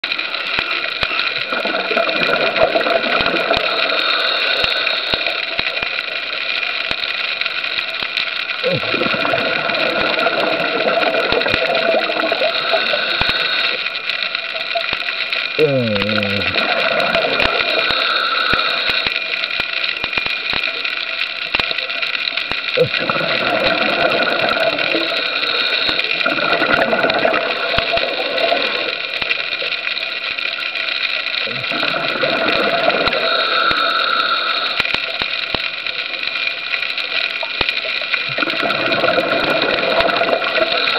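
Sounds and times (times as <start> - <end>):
steady hums: 0.0 - 36.2
underwater hiss: 0.1 - 40.9
sharp clicks: 10.2 - 25.0.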